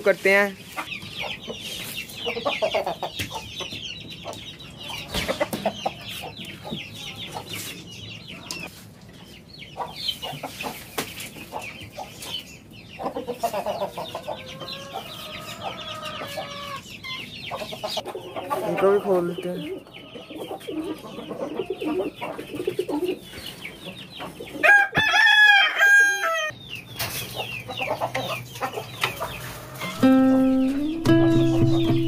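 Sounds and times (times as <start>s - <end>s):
small birds twittering: 0.0s - 24.7s, 26.5s - 32.0s
chickens clucking: 0.0s - 32.0s
chicken drawn-out call: 13.2s - 19.1s, 24.5s - 26.5s, 27.8s - 32.0s.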